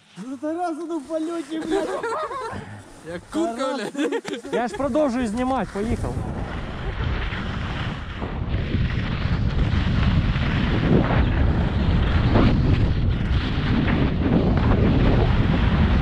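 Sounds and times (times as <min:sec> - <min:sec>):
wind rushing over microphone: 0:04.6 - 0:16.0.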